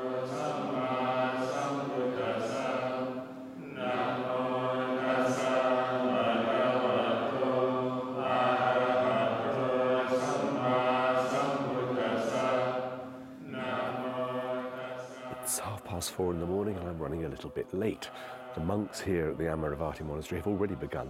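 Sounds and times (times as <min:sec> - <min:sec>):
monks chanting in unison: 0:00.0 - 0:21.0.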